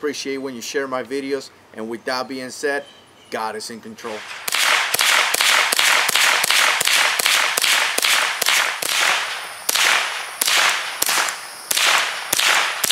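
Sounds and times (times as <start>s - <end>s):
rifle shots: 4.1s - 12.9s.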